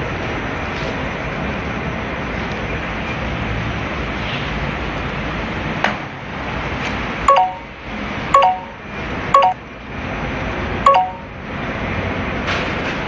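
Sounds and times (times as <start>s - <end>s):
steady background noise: 0.0s - 13.0s
short ringing tone: 7.3s - 7.7s, 8.4s - 8.8s, 9.4s - 9.6s, 10.8s - 11.3s.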